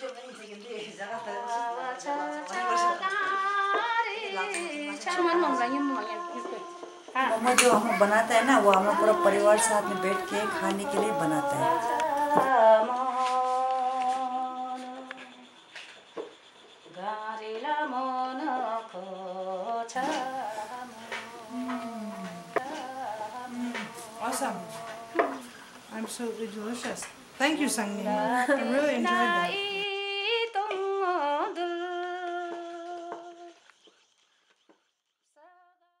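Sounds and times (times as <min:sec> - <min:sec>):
hummed vocal melody: 0:00.9 - 0:15.6, 0:16.9 - 0:33.6
person humming: 0:06.0 - 0:15.1, 0:19.9 - 0:25.7.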